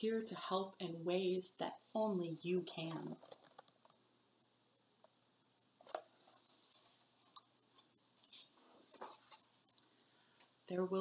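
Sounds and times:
paper page turning: 0:03.1 - 0:03.8, 0:08.2 - 0:09.5.

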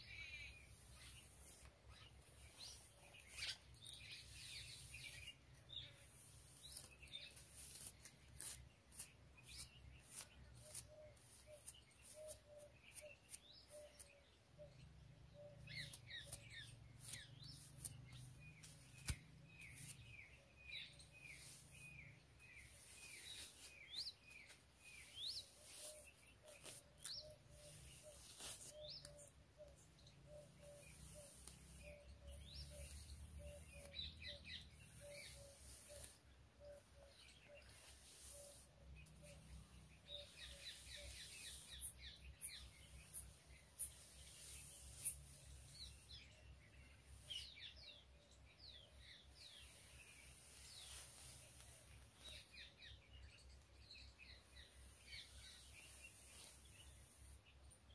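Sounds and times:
small birds chirping: 0:00.0 - 0:57.9
comb drawn through hair: 0:00.3 - 0:14.1, 0:15.7 - 0:29.2, 0:30.5 - 0:36.3, 0:37.6 - 0:46.2, 0:50.3 - 0:52.4.

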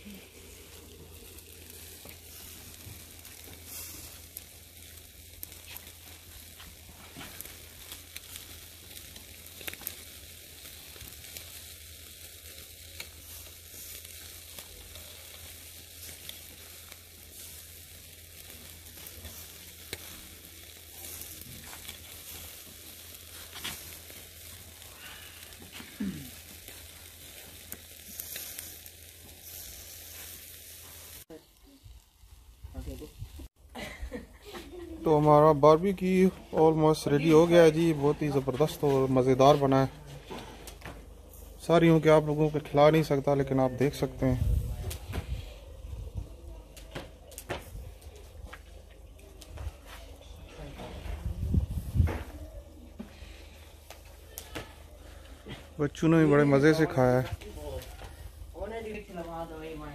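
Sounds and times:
charcoal crackles and pops: 0:00.0 - 0:59.9
meat sizzling on a grill: 0:00.0 - 0:59.9.

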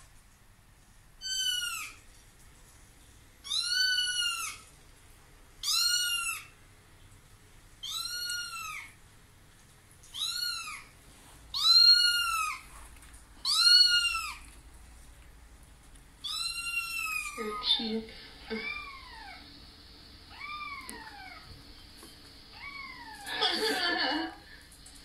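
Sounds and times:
kitten meowing through speakers: 0:07.8 - 0:09.0.

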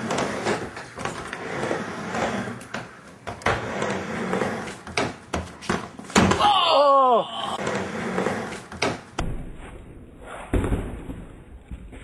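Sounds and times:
skateboard wheels rolling on ramp: 0:00.0 - 0:06.4, 0:07.6 - 0:09.2.

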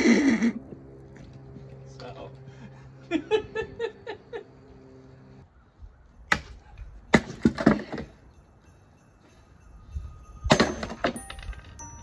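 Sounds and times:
music: 0:07.6 - 0:12.0.

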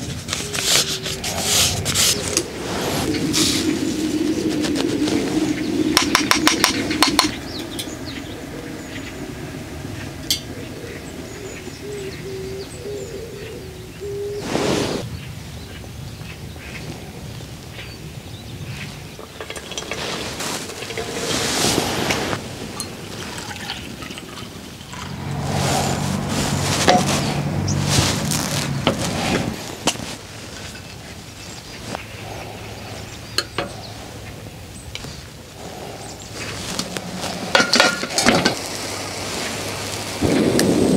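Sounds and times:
birds chirping faintly: 0:00.4 - 0:37.5
water trickling onto coffee: 0:19.3 - 0:28.7.

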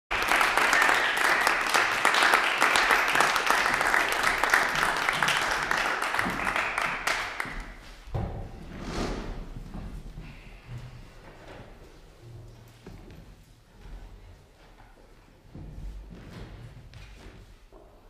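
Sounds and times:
audience applauding: 0:00.1 - 0:07.8.

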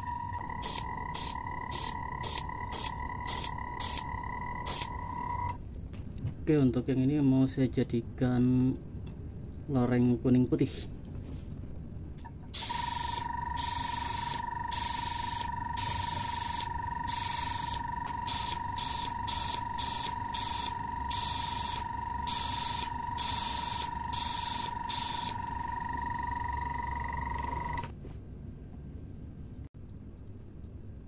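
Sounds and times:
small compressor whine: 0:00.0 - 0:05.6, 0:12.5 - 0:27.9
airbrush spraying hiss: 0:00.6 - 0:05.0, 0:12.6 - 0:25.4.

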